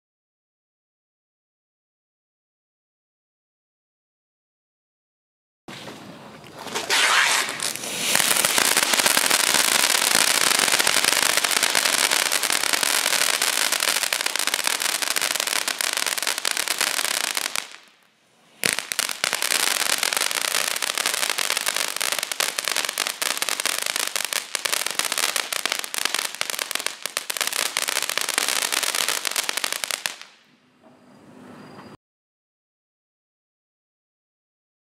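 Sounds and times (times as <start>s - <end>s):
firework fountain hissing and crackling: 6.6s - 30.5s.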